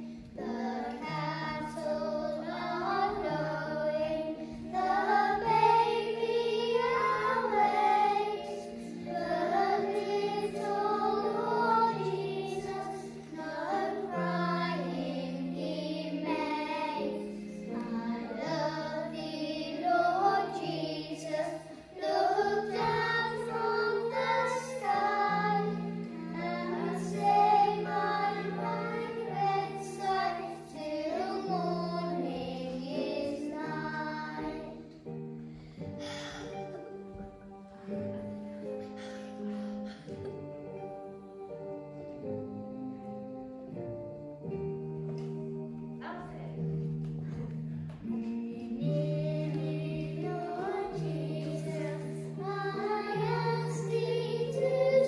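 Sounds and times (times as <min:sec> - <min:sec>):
children singing into a microphone: 0:00.0 - 0:34.9, 0:48.1 - 0:55.0
instrumental accompaniment low notes: 0:00.0 - 0:55.0.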